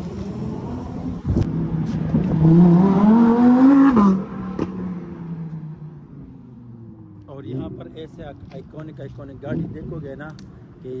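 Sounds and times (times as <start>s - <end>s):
car engine accelerating: 0.0s - 8.1s.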